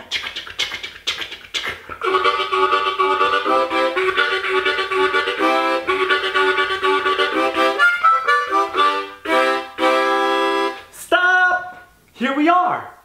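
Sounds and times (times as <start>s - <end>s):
harmonica chugging chords: 0.1s - 11.0s.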